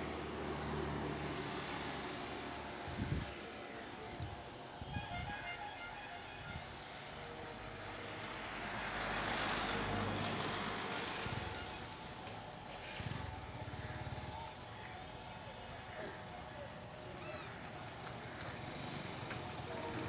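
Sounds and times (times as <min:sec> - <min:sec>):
engine passing: 0:07.9 - 0:14.6.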